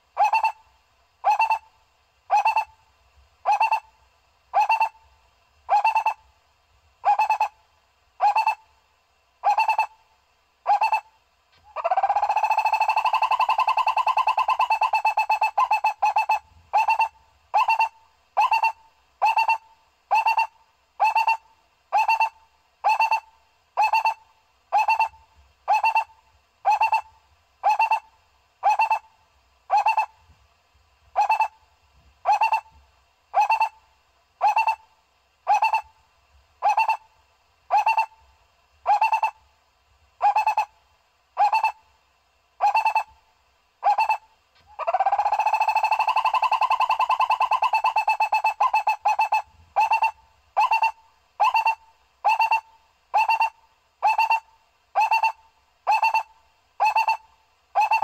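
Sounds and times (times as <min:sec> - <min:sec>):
barbet calling: 0:00.2 - 0:01.7, 0:02.3 - 0:02.8, 0:03.4 - 0:03.9, 0:04.5 - 0:05.0, 0:05.7 - 0:06.3, 0:07.0 - 0:07.6, 0:08.2 - 0:08.6, 0:09.4 - 0:10.0, 0:10.6 - 0:29.1, 0:29.7 - 0:30.2, 0:31.2 - 0:31.6, 0:32.2 - 0:32.7, 0:33.3 - 0:33.8, 0:34.4 - 0:34.9, 0:35.5 - 0:36.0, 0:36.6 - 0:37.1, 0:37.7 - 0:38.2, 0:38.8 - 0:39.4, 0:40.2 - 0:40.8, 0:41.4 - 0:41.8, 0:42.6 - 0:43.2, 0:43.8 - 0:58.0.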